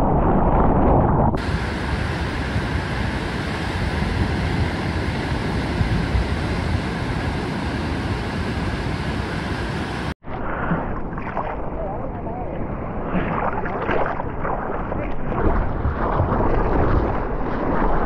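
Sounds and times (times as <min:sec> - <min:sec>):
wind on microphone: 0:00.0 - 0:18.0
churning whitewater: 0:01.4 - 0:10.2
waves breaking: 0:01.4 - 0:18.0.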